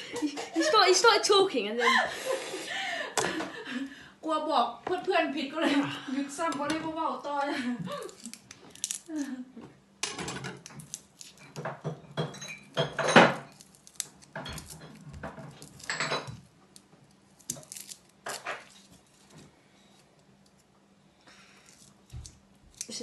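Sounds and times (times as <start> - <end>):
peeling garlic skin rustles: 7.9 - 9.6, 10.6 - 11.6, 13.4 - 23.0.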